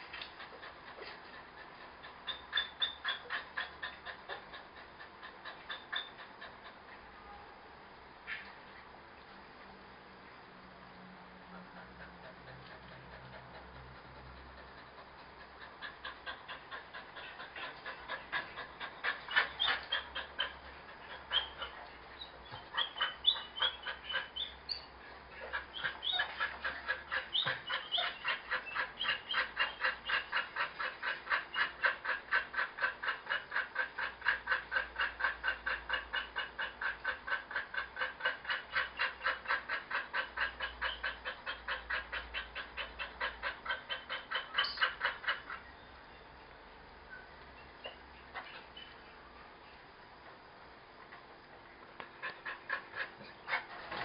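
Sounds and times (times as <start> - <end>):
dog panting: 0.0 - 7.2, 11.5 - 45.7, 52.0 - 54.0
dog whimpering: 0.4 - 6.8, 11.7 - 45.6.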